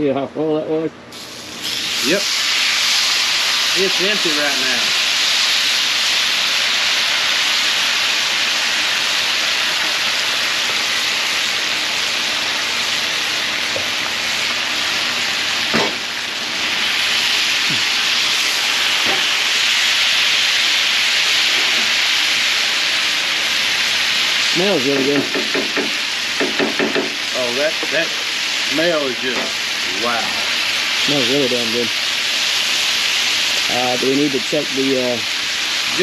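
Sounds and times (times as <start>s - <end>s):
food sizzling on a griddle: 1.1s - 36.0s
sharp knock: 15.7s - 16.0s, 25.0s - 27.2s.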